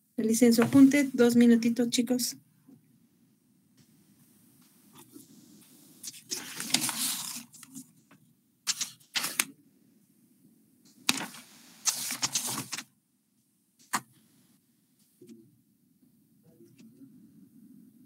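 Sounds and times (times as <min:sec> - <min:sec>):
rustling and clattering handling noise: 0:04.9 - 0:09.5, 0:11.0 - 0:12.9.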